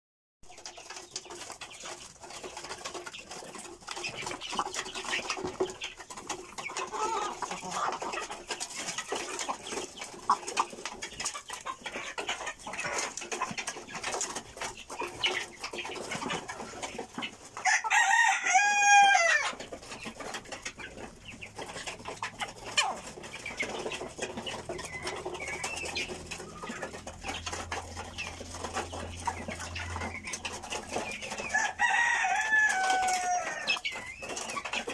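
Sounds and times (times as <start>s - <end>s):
chickens pecking grain: 0.4s - 34.9s
rooster crowing: 17.6s - 19.4s, 31.5s - 33.7s.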